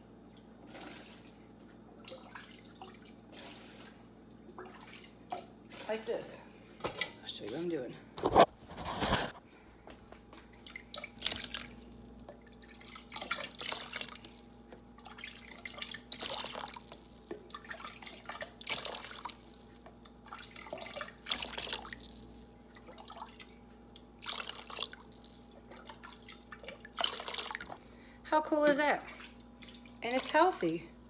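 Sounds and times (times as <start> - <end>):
broth splashing into containers: 10.6 - 28.1.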